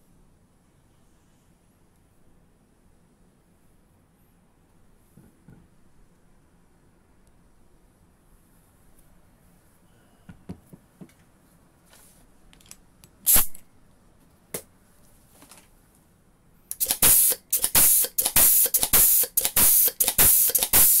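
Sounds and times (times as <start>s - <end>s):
pneumatic riveter air hiss: 13.3s - 13.6s, 16.7s - 21.0s.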